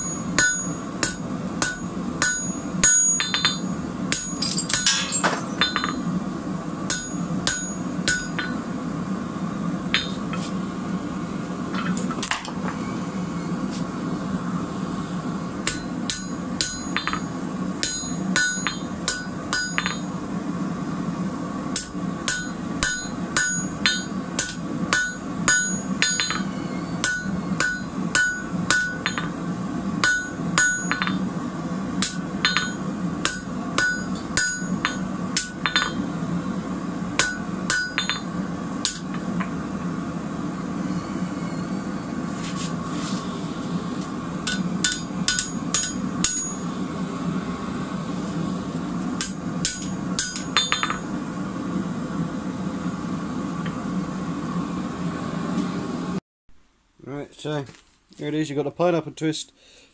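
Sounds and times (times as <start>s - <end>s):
hammer striking steel on anvil: 0.0s - 6.1s, 6.9s - 8.7s, 9.9s - 10.4s, 15.6s - 20.2s, 21.7s - 29.4s, 30.0s - 31.3s, 32.0s - 36.1s, 37.2s - 39.5s, 44.4s - 46.7s, 49.2s - 51.1s
steady low hum: 0.0s - 59.9s.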